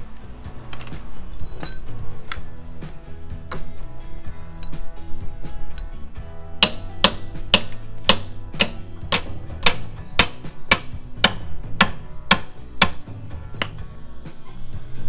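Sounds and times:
background music: 0.0 - 15.0
hammer striking metal punch: 6.6 - 13.8.

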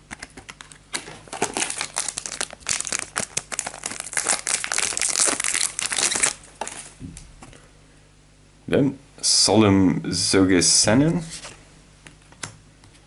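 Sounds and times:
foil wrapper crinkling: 0.2 - 7.0.

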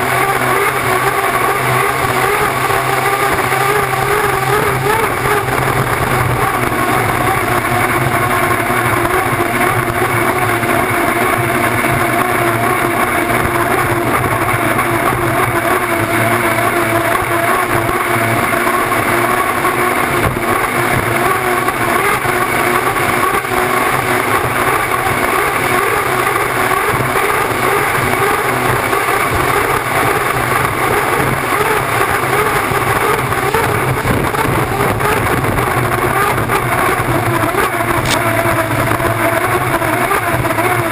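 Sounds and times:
gas turbine engine running: 0.0 - 40.9
wind and water spray rushing: 26.3 - 40.7.

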